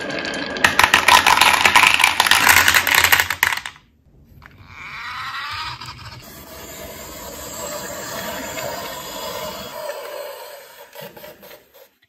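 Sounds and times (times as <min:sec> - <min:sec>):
toy truck wheels whirring on table: 0:04.8 - 0:12.0.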